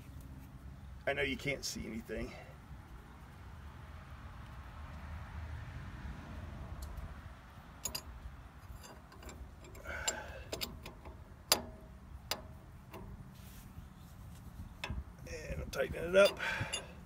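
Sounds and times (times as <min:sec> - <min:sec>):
wrench clicking on metal: 0:07.8 - 0:08.1, 0:08.8 - 0:13.2, 0:16.0 - 0:17.0.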